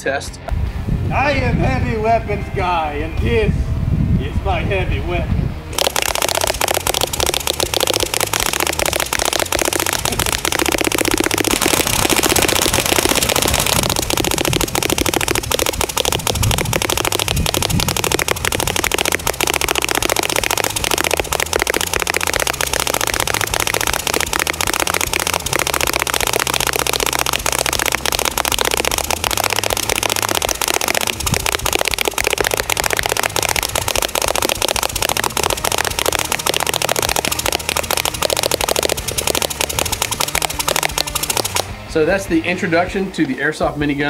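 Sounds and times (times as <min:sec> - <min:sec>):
airsoft minigun rattling full-auto: 0:05.8 - 0:41.7.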